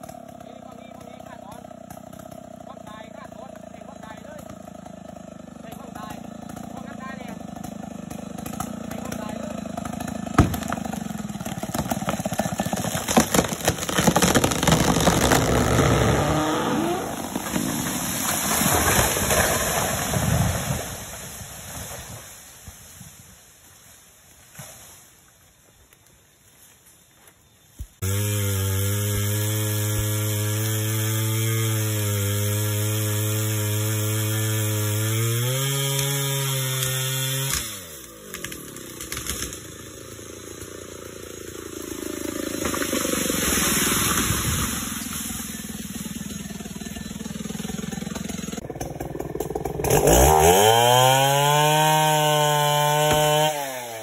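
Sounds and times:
chainsaw engine revving: 0.0s - 21.3s, 28.0s - 54.0s
sharp knocks: 10.3s - 10.9s.

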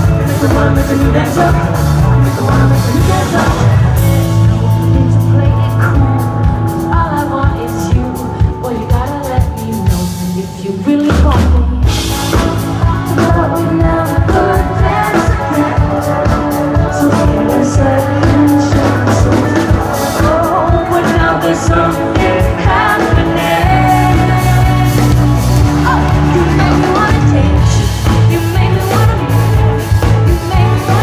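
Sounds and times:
drum-kit beat: 0.0s - 7.0s, 11.1s - 31.0s
live pop-rock band: 0.0s - 31.0s
choir singing: 13.7s - 27.4s.

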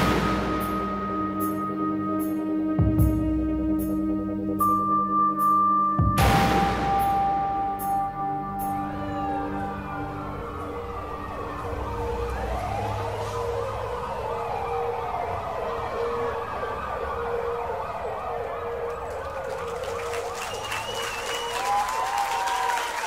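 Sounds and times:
sirens wailing: 0.0s - 23.0s
applause: 18.8s - 23.0s.

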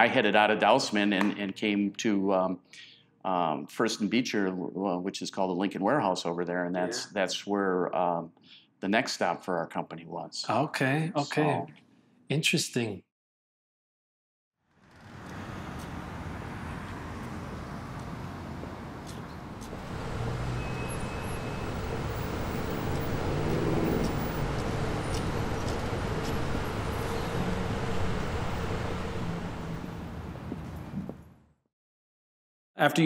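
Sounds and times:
road traffic noise: 14.7s - 31.4s.

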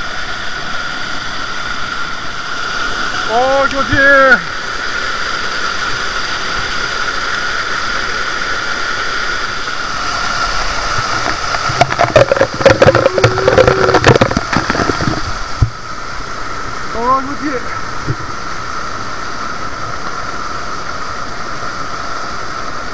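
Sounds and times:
waterfall and stream running: 0.0s - 22.9s
close splashing and knocking: 10.1s - 15.8s.

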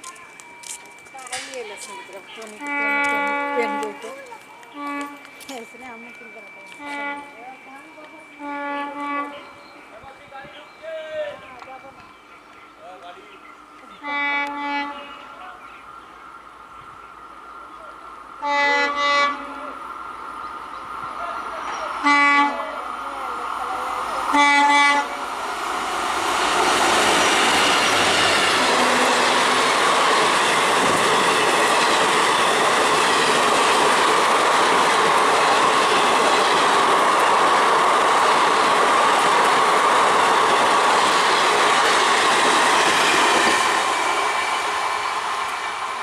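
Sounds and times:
train wheels roaring on rail: 0.0s - 46.0s
locomotive horn blasts: 2.5s - 4.0s, 4.7s - 5.4s, 6.7s - 7.4s, 8.4s - 9.6s, 14.0s - 15.3s, 18.4s - 19.7s, 22.0s - 22.7s, 24.3s - 25.2s, 28.6s - 29.6s.

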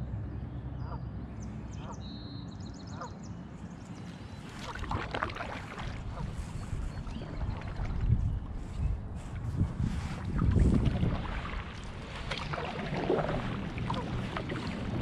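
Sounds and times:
faint high birdsong: 0.0s - 5.0s, 6.2s - 9.0s
wind rumbling on microphone: 3.7s - 15.0s
water splashing from paddle: 4.4s - 8.6s, 9.2s - 15.0s.

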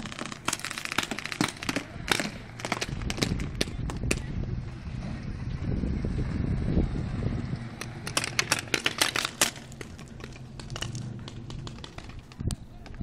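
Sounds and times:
paintball markers firing: 0.0s - 4.3s, 7.8s - 13.0s
low rumble: 2.7s - 8.7s.

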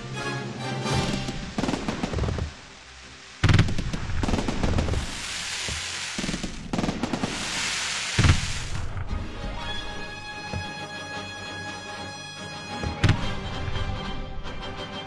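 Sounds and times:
firework crackling hiss: 0.8s - 9.1s
firework bangs: 1.0s - 9.1s.

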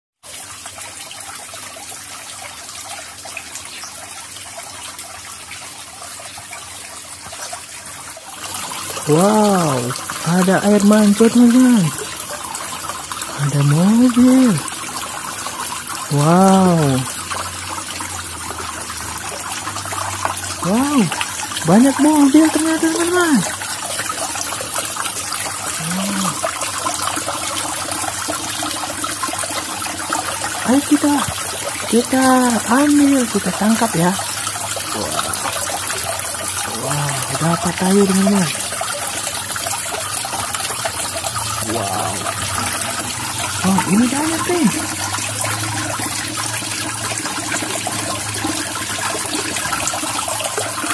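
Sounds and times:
fountain water trickling and splashing: 0.2s - 50.9s.

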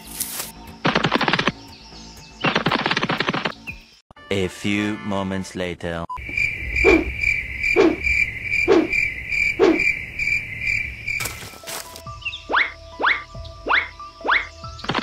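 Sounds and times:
frog croaking: 6.2s - 11.2s
crickets chirping: 6.2s - 12.0s.

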